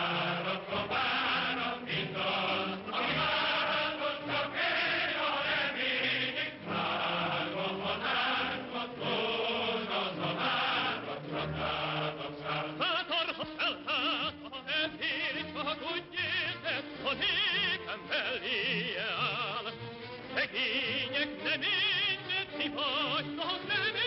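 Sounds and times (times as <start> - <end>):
crowd chorus singing: 0.0 - 13.1.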